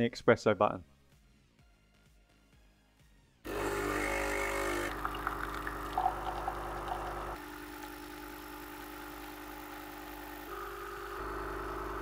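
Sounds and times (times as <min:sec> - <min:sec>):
espresso pouring into cup: 0:03.5 - 0:10.5
coffee machine pump buzzing: 0:03.5 - 0:12.0.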